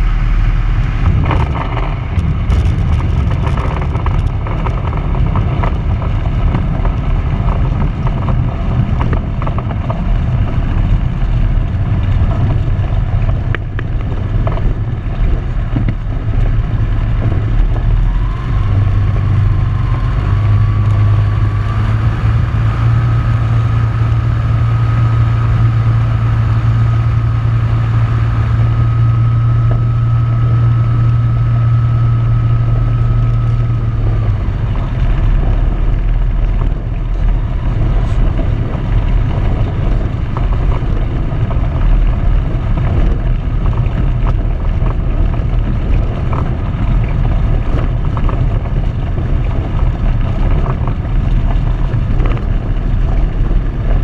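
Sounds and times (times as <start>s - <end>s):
aircraft engine and propeller drone: 0.0s - 54.0s
clicks and rattles: 1.0s - 10.1s.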